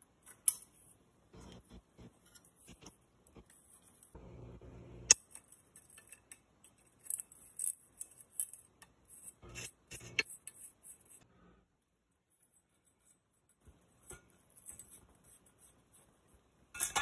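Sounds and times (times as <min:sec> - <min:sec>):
metal bicycle parts clinking: 0:05.1 - 0:11.2, 0:12.4 - 0:17.0.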